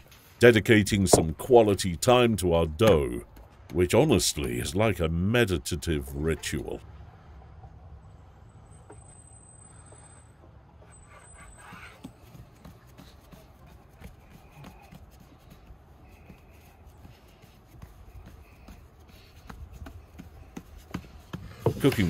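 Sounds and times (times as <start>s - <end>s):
hands patting dough on wood: 12.0s - 22.0s.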